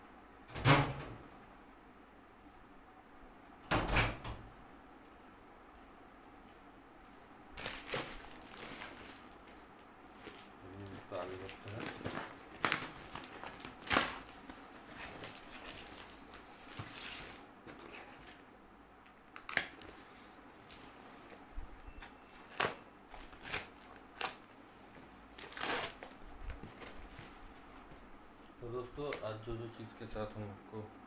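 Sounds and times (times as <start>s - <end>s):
cardboard and tape tearing: 7.6s - 9.3s, 10.3s - 18.4s, 22.4s - 24.4s, 25.3s - 26.9s
plastic wrapping crinkling: 7.6s - 18.4s, 19.0s - 21.0s, 22.0s - 27.5s.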